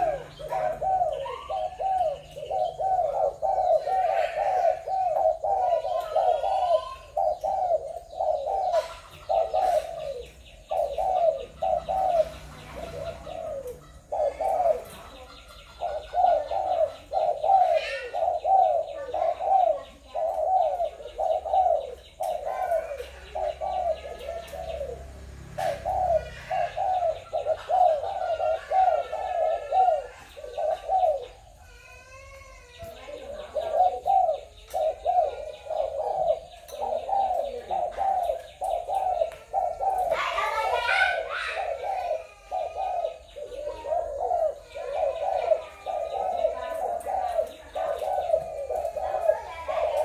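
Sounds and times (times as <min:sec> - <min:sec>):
doves cooing: 0:00.0 - 0:50.0
small birds chirping: 0:00.0 - 0:50.0.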